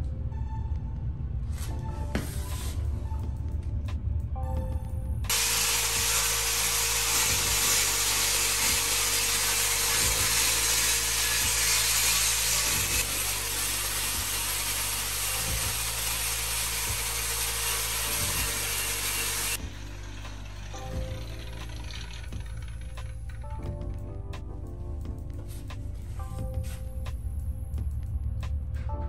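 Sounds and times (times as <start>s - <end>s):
angle grinder grinding tile: 5.3s - 23.2s.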